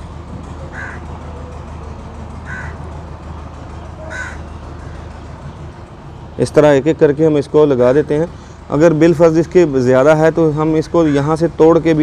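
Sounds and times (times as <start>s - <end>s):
steady low hum: 0.0s - 12.0s
bird calling: 0.7s - 1.1s, 2.4s - 2.8s, 3.8s - 5.2s.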